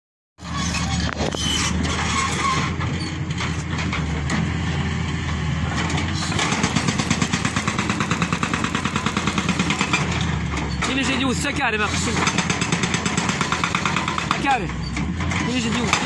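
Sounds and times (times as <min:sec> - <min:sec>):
diesel engine running: 0:00.4 - 0:16.0
hydraulic breaker hammering rock: 0:06.0 - 0:16.0.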